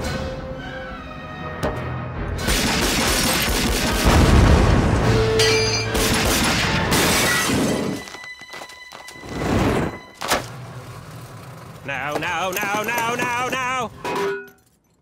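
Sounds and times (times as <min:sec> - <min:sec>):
dramatic action film score: 0:00.0 - 0:08.2
explosion rumble: 0:04.0 - 0:05.2.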